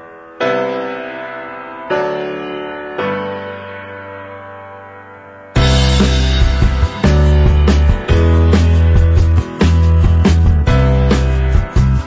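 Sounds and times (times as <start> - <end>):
held music chord: 5.6 - 12.0.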